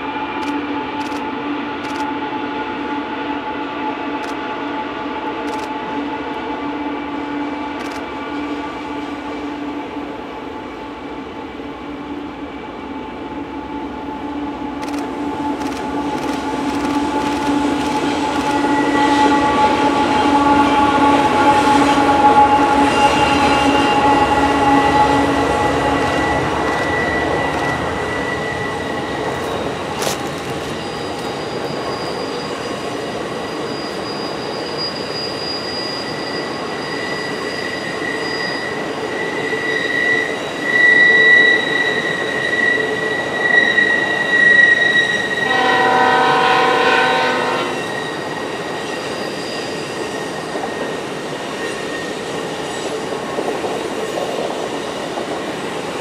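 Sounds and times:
diesel locomotive engine drone: 0.0 - 56.0
wheel flange squeal: 17.2 - 52.8.

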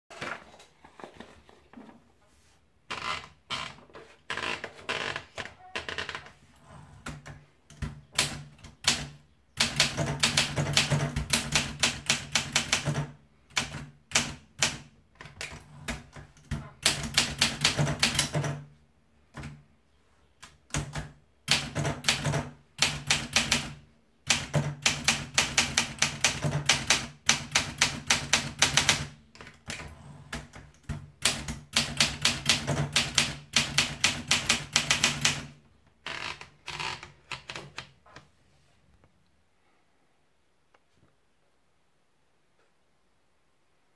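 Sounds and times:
typewriter keys clacking: 15.4 - 18.6.

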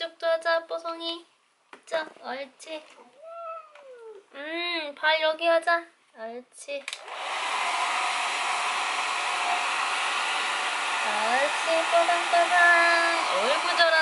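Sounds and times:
hair dryer blowing: 7.0 - 14.0.

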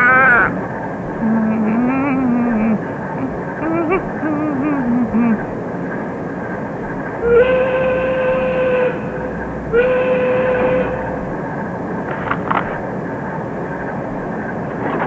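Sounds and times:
long whistle-like tones: 7.2 - 11.2.

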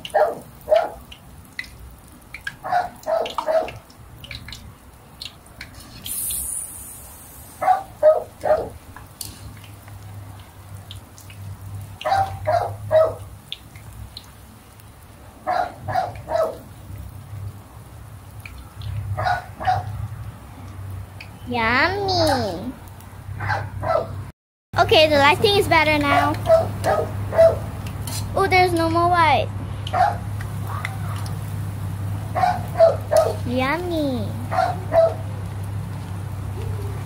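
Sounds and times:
dog barking: 0.0 - 1.0, 2.6 - 3.8, 7.6 - 8.8, 12.0 - 13.3, 15.4 - 16.7, 19.2 - 19.9, 23.4 - 24.2, 26.2 - 27.6, 29.9 - 31.3, 32.4 - 33.5, 34.5 - 35.3
food frying in oil: 0.0 - 23.4, 24.8 - 37.0.

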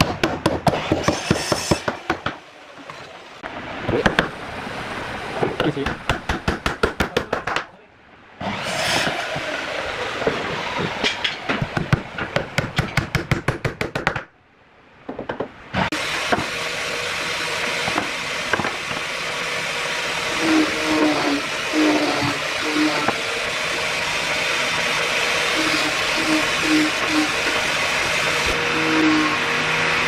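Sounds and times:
woodworking power tool knocking: 17.7 - 19.1.

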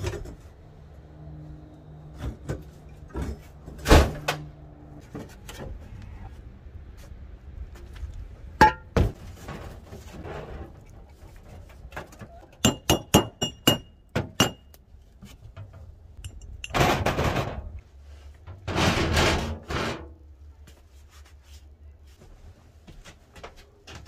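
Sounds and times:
ringing metallic taps: 12.6 - 14.8.

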